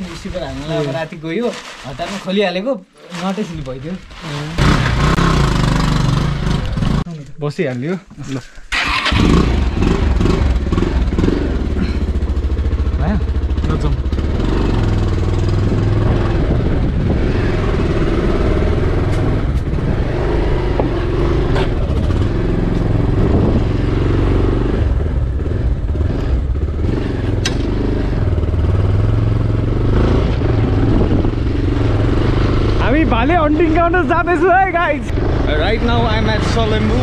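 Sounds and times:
motorcycle engine in low gear: 8.7s - 32.8s.

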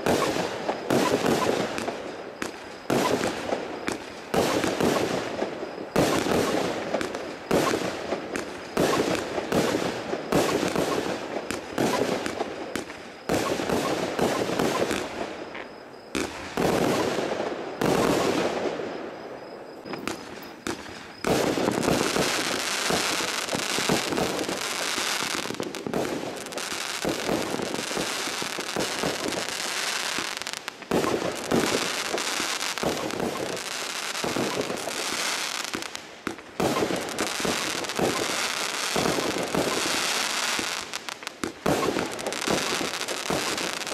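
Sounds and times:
firework bangs: 0.0s - 43.9s
fireworks shots crackling: 0.0s - 43.9s.

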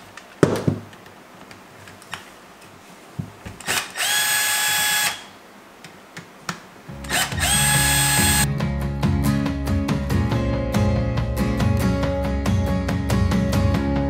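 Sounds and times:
cordless drill motor spinning: 3.6s - 5.3s, 7.0s - 8.5s.

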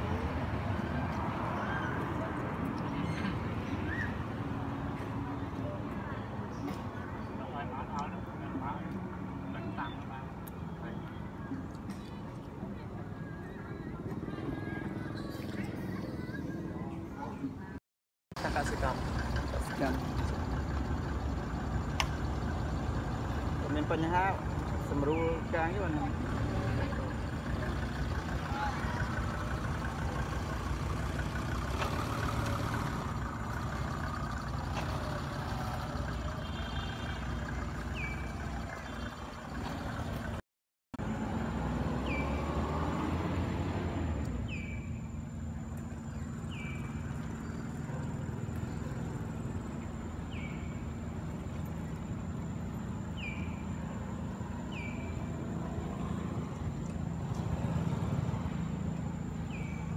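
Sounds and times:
low outdoor rumble: 18.4s - 40.4s, 43.2s - 59.9s.

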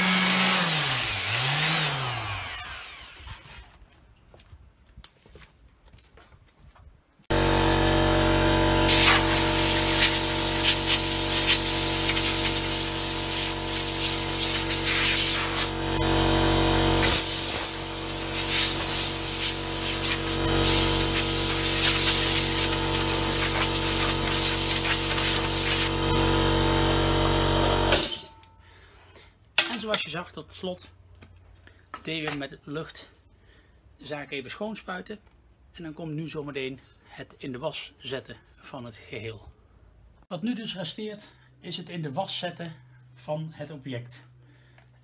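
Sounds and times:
air compressor humming: 7.3s - 28.3s
air blow gun hissing: 8.9s - 15.8s, 17.0s - 26.1s.

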